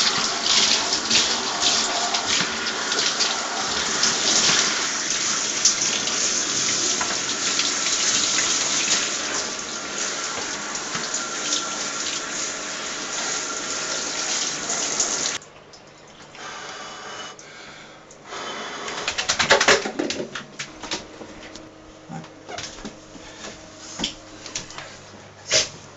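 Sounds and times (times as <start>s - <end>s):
shower head spraying water: 0.0s - 15.4s.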